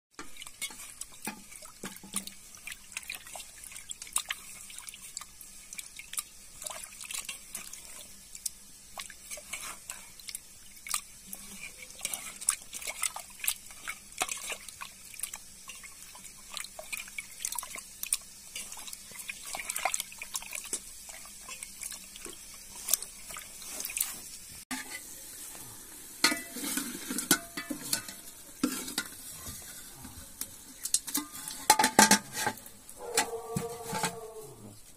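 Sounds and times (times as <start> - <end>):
metal pot clinking and scraping: 0.2 - 2.4, 9.2 - 10.2, 11.2 - 14.7, 20.6 - 34.3
water sloshing and splashing: 0.2 - 25.1.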